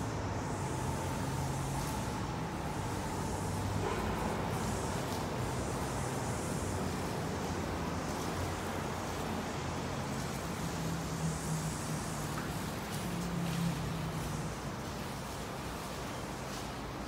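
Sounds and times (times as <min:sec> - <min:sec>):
distant road traffic: 0:00.0 - 0:17.0.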